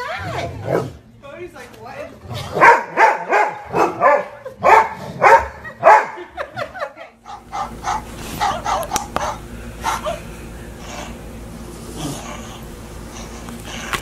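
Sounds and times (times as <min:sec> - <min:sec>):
steady low hum: 0:00.0 - 0:14.0
dog barking: 0:02.5 - 0:06.3, 0:07.3 - 0:10.1.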